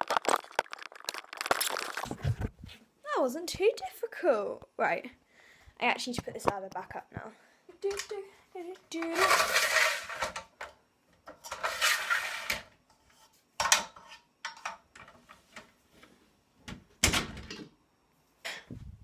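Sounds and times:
metal ladder scraping and rattling: 9.0s - 10.4s, 11.4s - 14.2s.

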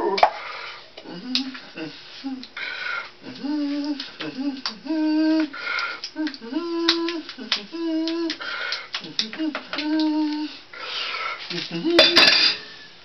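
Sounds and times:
man singing gibberish: 1.0s - 2.6s, 3.2s - 8.4s, 9.0s - 10.6s, 11.5s - 12.4s.

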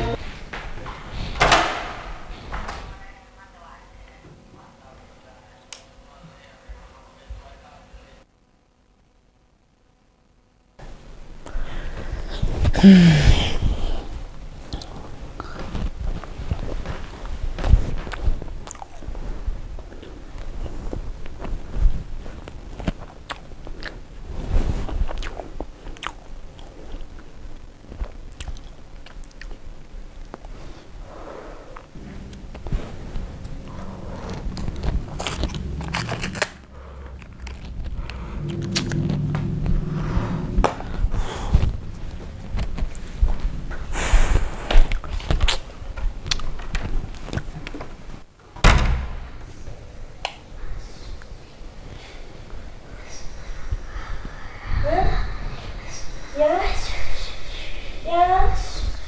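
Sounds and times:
footsteps: 0.0s - 3.1s, 31.8s - 48.2s
wooden door opening and shutting: 0.7s - 3.0s, 48.6s - 49.5s
rustling: 29.6s - 48.3s.

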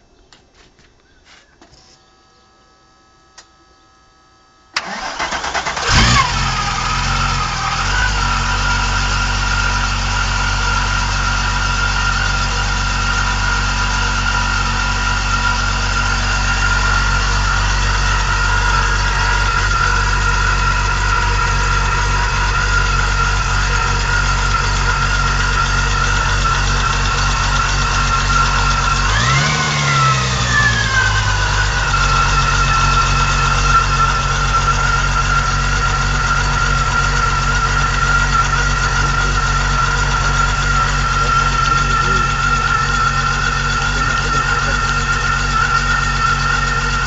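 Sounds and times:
engine starter cranking: 4.8s - 7.0s, 37.3s - 47.0s
car engine idling: 4.8s - 47.0s
high whine: 6.2s - 47.0s.

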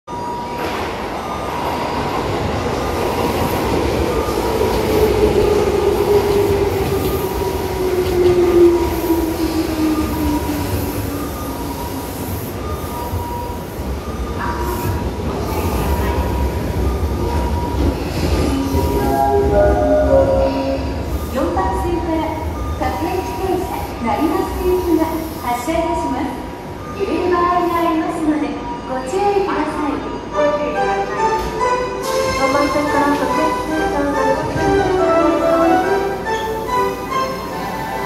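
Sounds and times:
train wheels rumbling on rail: 0.6s - 26.9s.

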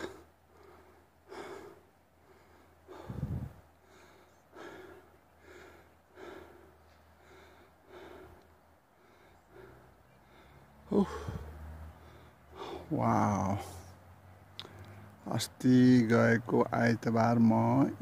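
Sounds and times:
person breathing hard: 0.0s - 12.9s.

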